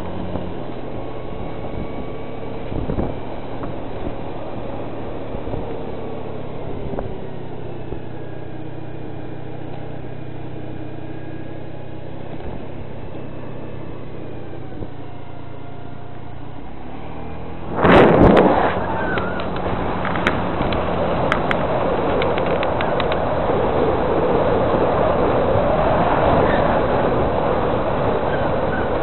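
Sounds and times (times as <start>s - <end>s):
steady low drone: 0.0s - 29.0s
loud burst of noise: 16.9s - 20.2s
sharp clicks: 18.7s - 23.2s.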